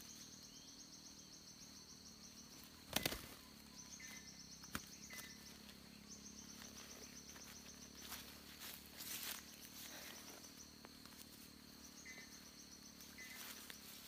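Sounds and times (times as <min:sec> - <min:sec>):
insects trilling: 0:00.0 - 0:14.0
steady high hum: 0:00.0 - 0:14.0
flapping and rustling scuffle: 0:02.9 - 0:03.4.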